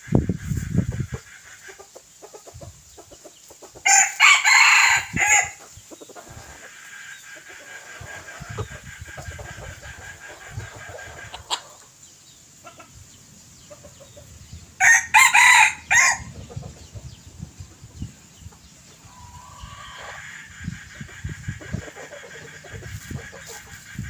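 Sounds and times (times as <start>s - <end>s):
faint distant rooster crow: 3.8s - 5.6s, 14.8s - 17.2s
rooster crowing: 3.8s - 5.6s, 14.8s - 16.3s.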